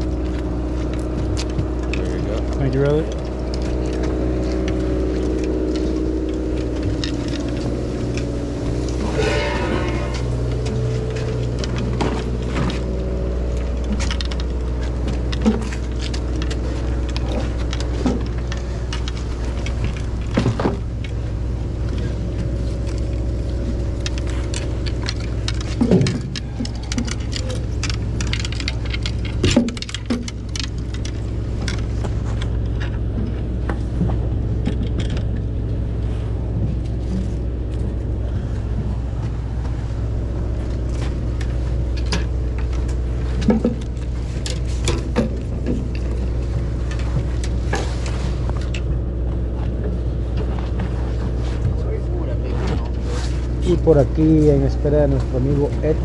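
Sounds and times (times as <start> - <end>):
boat engine droning: 0.0 - 56.0
clicks knocks and clatter: 0.2 - 21.2, 21.9 - 35.5.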